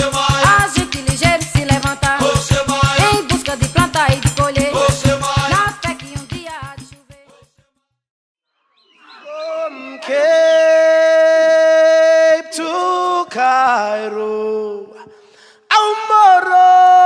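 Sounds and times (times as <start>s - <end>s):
group of people singing: 0.0s - 7.4s.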